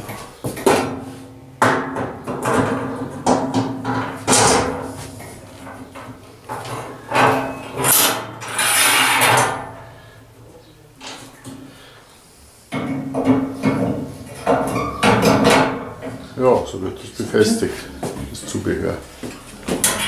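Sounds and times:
metal knocks and clanks: 0.0 - 9.8, 12.7 - 16.2, 19.7 - 20.0
metal scraping clatter: 6.5 - 9.8.

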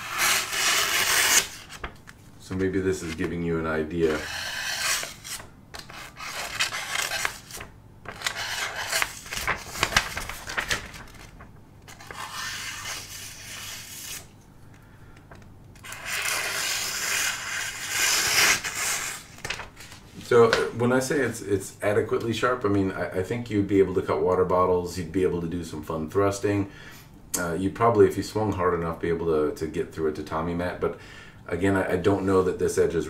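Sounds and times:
paper sliced against sword edge: 4.2 - 9.5.

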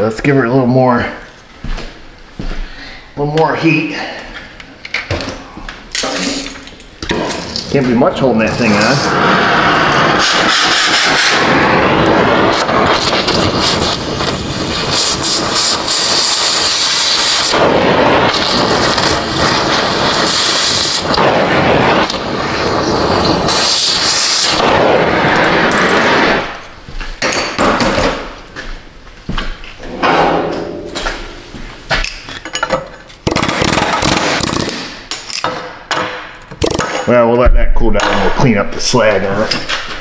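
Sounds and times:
gas torch flame hissing: 7.4 - 26.8
crackling pops: 8.7 - 26.7.

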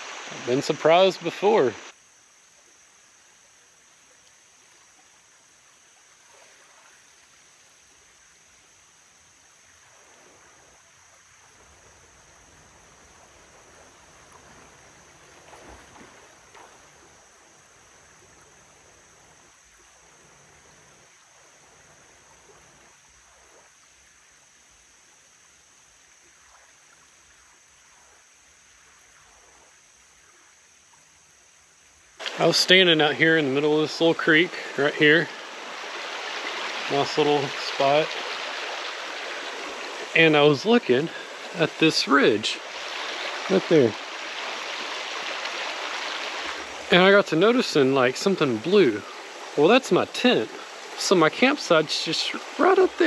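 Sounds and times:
creek water running over rocks: 0.0 - 53.0
knocks or splashes: 15.4 - 17.0, 32.2 - 33.1.

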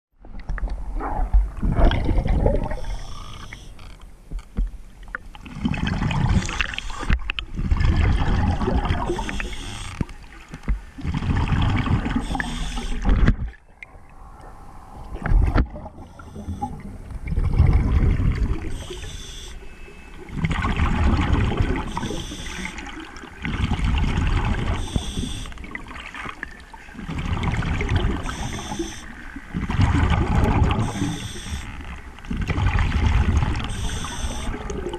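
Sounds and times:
bubbly exhalations: 1.1 - 2.9
diver breathing through regulator: 2.7 - 3.7, 9.1 - 10.0, 12.2 - 13.1, 13.9 - 16.8, 30.8 - 31.7.

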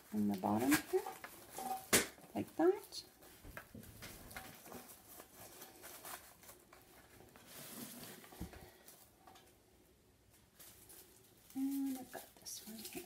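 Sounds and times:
rustling of artificial foliage: 0.0 - 13.0.

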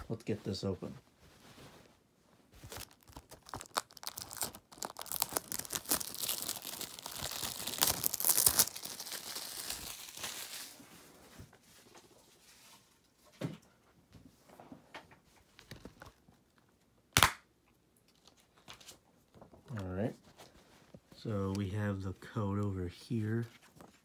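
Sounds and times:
plastic wrap crinkling: 2.5 - 11.0.

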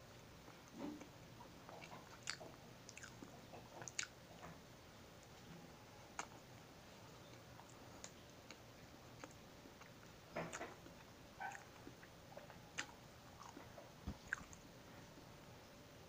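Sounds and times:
person chewing with lip smacks: 1.7 - 4.2, 6.2 - 6.4, 9.2 - 14.6.

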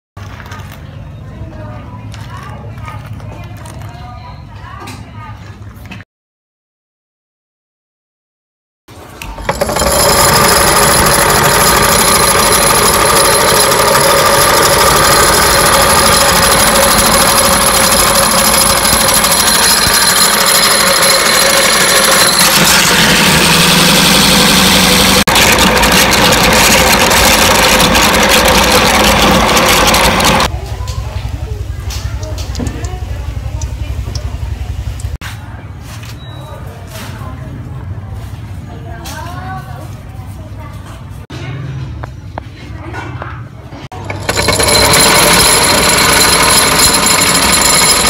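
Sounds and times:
grinder rattling clicks: 9.2 - 30.5, 44.0 - 48.0
meat grinder motor whining: 9.2 - 30.5, 44.0 - 48.0.

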